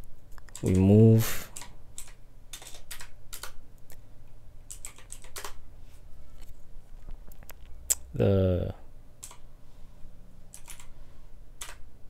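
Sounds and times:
keyboard keystroke clicks: 4.7 - 5.6, 10.5 - 10.9, 11.6 - 11.8.

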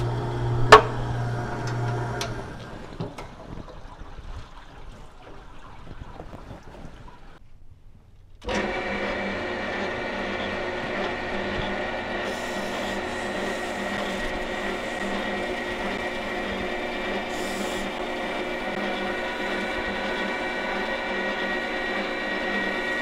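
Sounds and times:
metal lathe whining: 0.0 - 2.8, 8.4 - 23.0.

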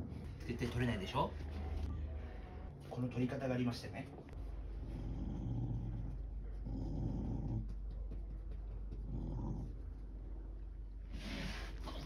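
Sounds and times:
dog growling: 4.8 - 7.8, 8.9 - 10.0.

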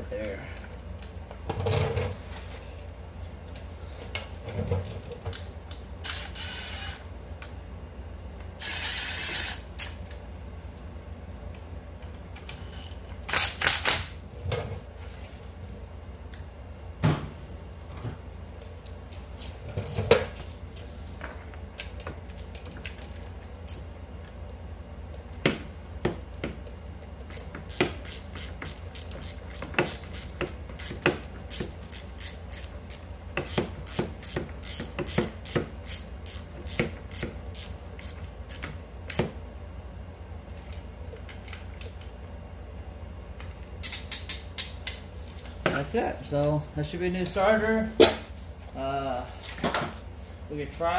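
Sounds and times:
hand ratchet clicking: 27.3 - 38.7.

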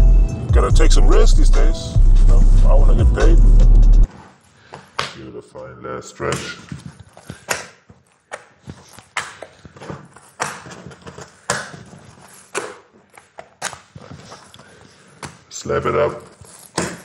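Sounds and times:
dough slapping on countertop: 7.4 - 9.6, 11.5 - 11.9.

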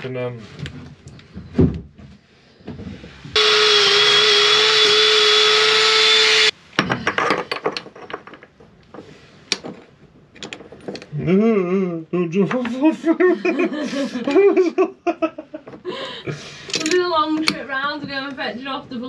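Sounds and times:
drill spinning wire brush on metal: 3.4 - 6.6
hand tools clicking and knocking: 16.6 - 17.6.

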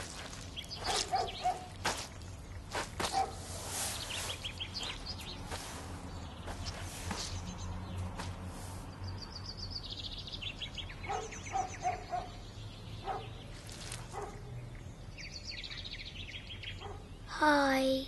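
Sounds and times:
bird chirping trills: 0.0 - 8.3, 8.9 - 17.3
soft steps in wet concrete: 0.0 - 8.9, 13.6 - 14.3.

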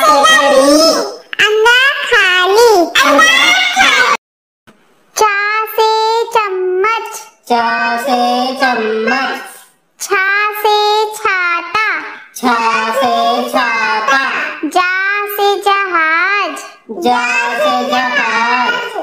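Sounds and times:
child singing: 5.2 - 19.0.

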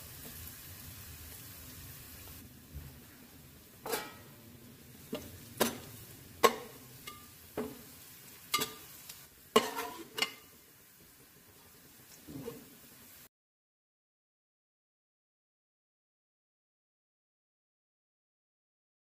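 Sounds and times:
oil sizzling: 0.0 - 13.3
metal skimmer clanking on pot: 3.8 - 4.2, 8.6 - 8.8.

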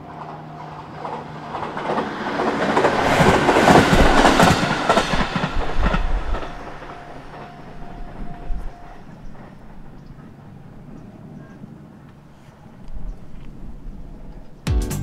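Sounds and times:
crossing warning bell ringing: 0.0 - 2.0, 4.9 - 10.0
wheels clacking over rail joints: 0.0 - 11.1
electric train passing: 0.0 - 14.6.

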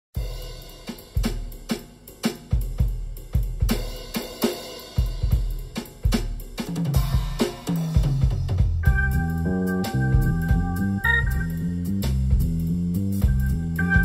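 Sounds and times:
drum kit beat: 0.2 - 14.0
bass line: 8.8 - 14.0.

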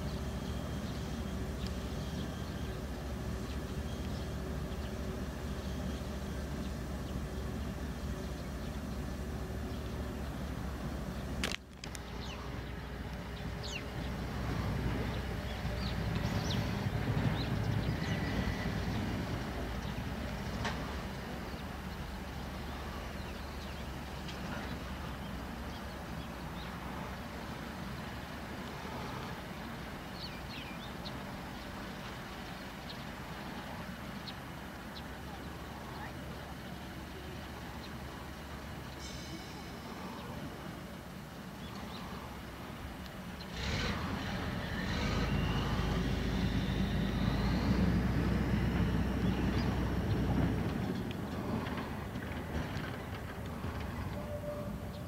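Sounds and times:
diesel engine rumbling: 0.0 - 55.0
faint high squeal: 54.1 - 54.9.

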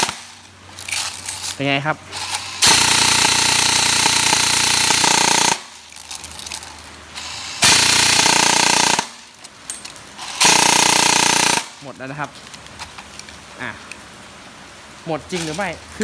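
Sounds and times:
airsoft gun firing full auto: 0.0 - 0.3, 2.6 - 5.7, 7.6 - 9.2, 10.4 - 11.8.

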